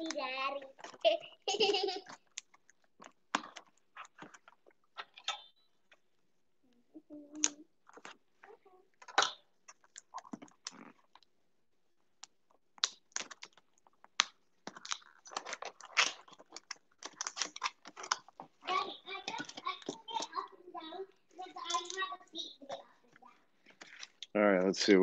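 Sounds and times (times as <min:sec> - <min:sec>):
packaging crinkling: 0:12.2 - 0:24.3.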